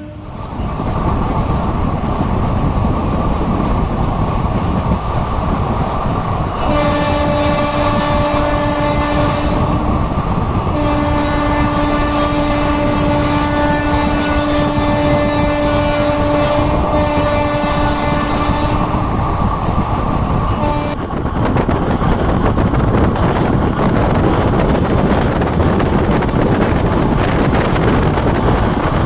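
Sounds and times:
locomotive horn blast: 0.0s - 0.4s, 6.6s - 9.9s, 10.7s - 19.0s, 20.6s - 21.0s
train wheels rumbling on rails: 0.0s - 29.0s.

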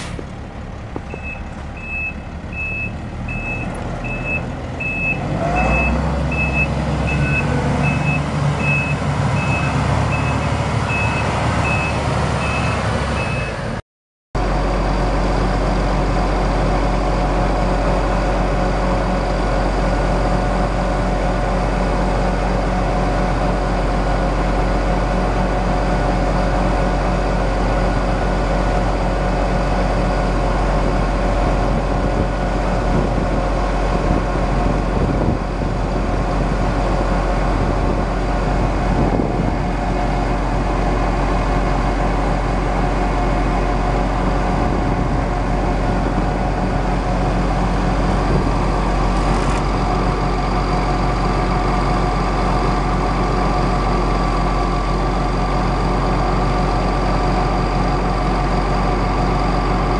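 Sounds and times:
diesel engine low rumble: 0.0s - 13.8s, 14.4s - 59.9s
hydraulic pump whine: 37.5s - 59.9s.

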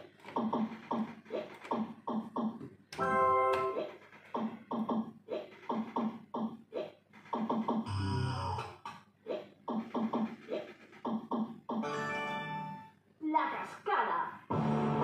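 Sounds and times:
slot machine electronic blips: 11.8s - 12.9s.

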